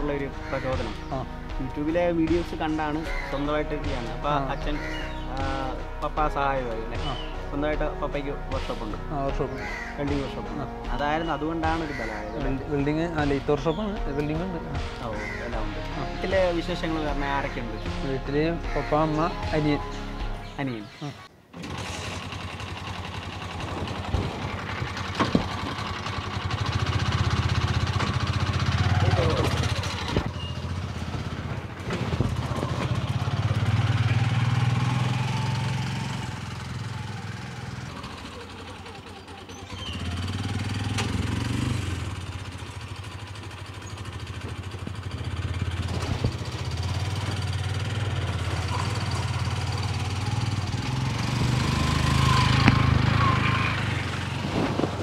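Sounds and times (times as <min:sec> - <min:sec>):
small jeep engine revving: 0:21.6 - 0:55.0.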